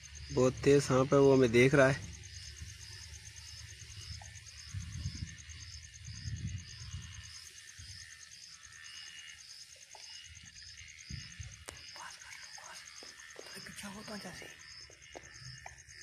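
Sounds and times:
insect chirping: 0:00.0 - 0:16.0
low microphone rumbles: 0:04.0 - 0:07.2.

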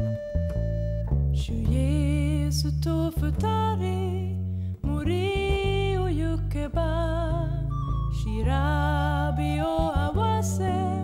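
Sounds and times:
woman singing with vibrato: 0:01.4 - 0:11.0
acoustic guitar: 0:04.4 - 0:11.0.

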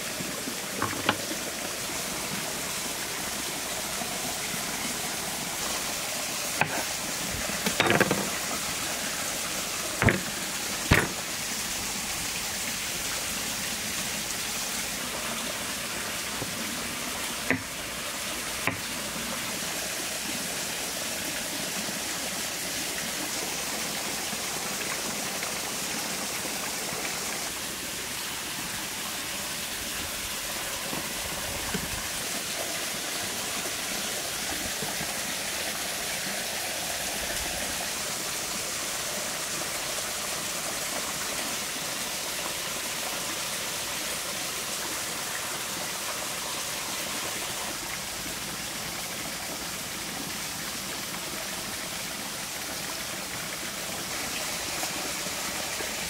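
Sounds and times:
stream rushing: 0:00.0 - 0:56.0
knife knocking on cutting board: 0:10.0 - 0:10.3, 0:10.9 - 0:11.2.

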